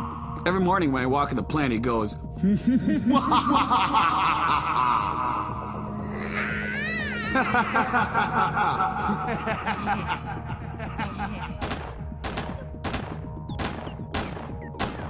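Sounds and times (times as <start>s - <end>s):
background music: 0.0s - 15.0s
man cackling laugh: 2.4s - 5.5s, 7.2s - 11.6s
gunshot sound effects: 11.6s - 15.0s.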